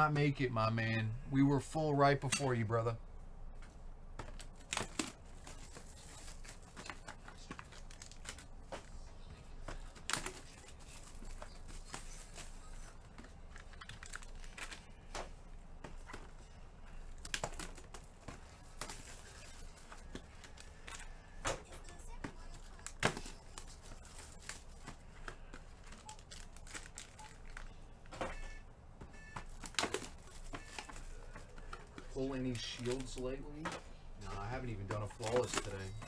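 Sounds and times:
crinkling: 3.6 - 36.0.

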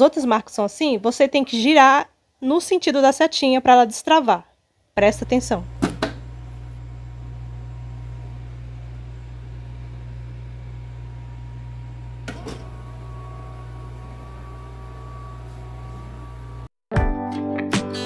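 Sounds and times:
low appliance hum: 5.0 - 16.7
stirring motor whine: 5.0 - 16.7.

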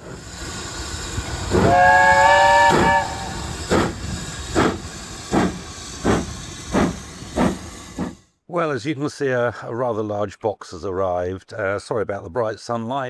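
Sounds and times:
locomotive exhaust chuffs: 0.0 - 8.3
steam hissing: 0.0 - 8.3
steam whistle: 1.5 - 3.6.

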